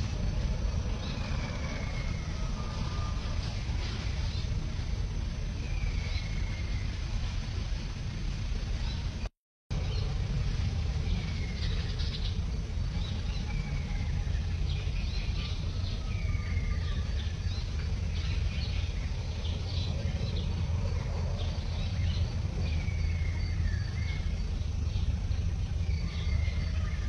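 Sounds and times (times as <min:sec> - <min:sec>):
steady low rumble: 0:00.0 - 0:27.0
birds whistling and chirping: 0:13.0 - 0:27.0.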